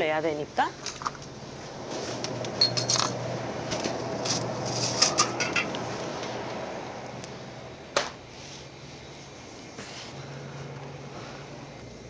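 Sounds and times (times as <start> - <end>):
glass bottles clinking: 2.6 - 3.1, 5.0 - 5.7.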